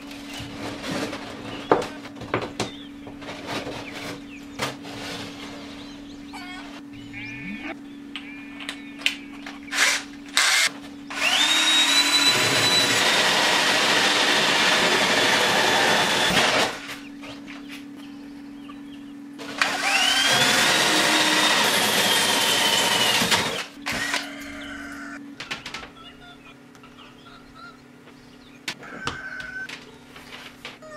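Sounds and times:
drill motor whine: 0:09.7 - 0:16.8, 0:19.4 - 0:25.2.

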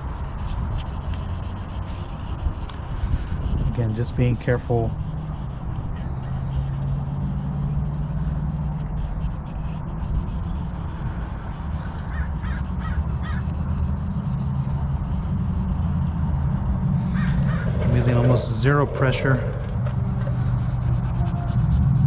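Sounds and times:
sandpaper rubbing on plastic: 0:00.0 - 0:22.0
bird calling: 0:11.8 - 0:13.5, 0:17.1 - 0:18.2.

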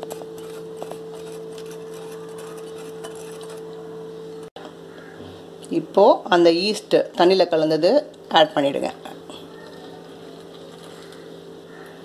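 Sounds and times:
wire whisk scraping a bowl: 0:00.0 - 0:03.8
steady hum: 0:00.0 - 0:12.0.

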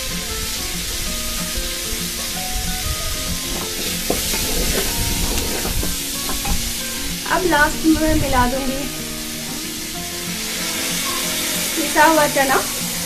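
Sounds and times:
food sizzling in oil: 0:00.0 - 0:13.0
soft background music: 0:00.0 - 0:13.0
metal spoon scraping pot: 0:03.5 - 0:06.6.

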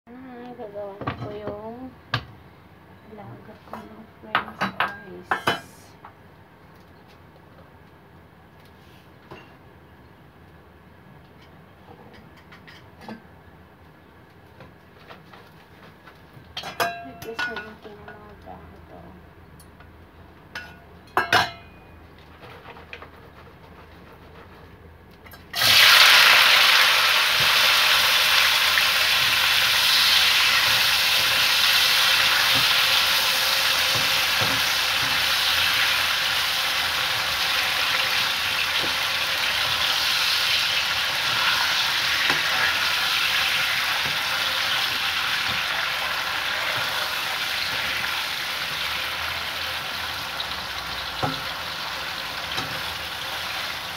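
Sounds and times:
potatoes sizzling in hot oil: 0:25.5 - 0:53.9.

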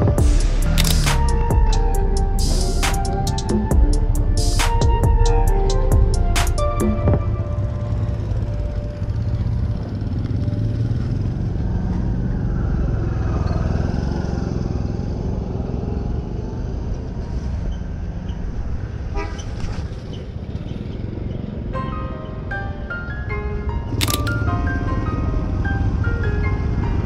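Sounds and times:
motorbikes and cars passing: 0:07.0 - 0:27.0.

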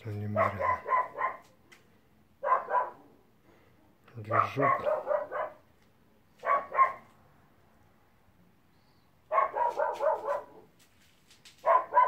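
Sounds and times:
dog barking: 0:00.2 - 0:01.6, 0:02.4 - 0:03.2, 0:04.3 - 0:05.7, 0:06.4 - 0:07.1, 0:09.3 - 0:10.7, 0:11.6 - 0:12.0.

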